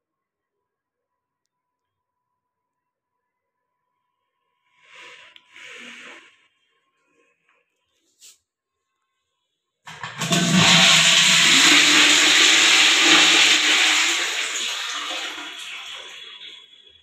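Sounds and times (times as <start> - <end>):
toilet flushing: 9.9 - 17.0.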